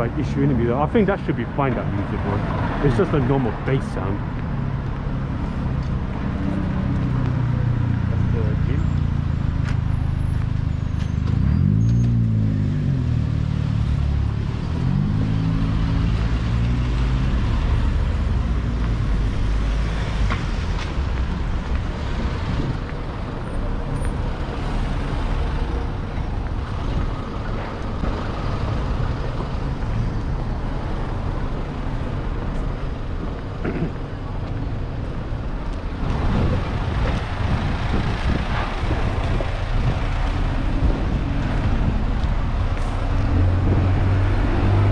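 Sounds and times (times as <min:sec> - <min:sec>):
passing cars rumble: 0:00.0 - 0:44.9
large vehicle engine pulling away: 0:07.0 - 0:26.0.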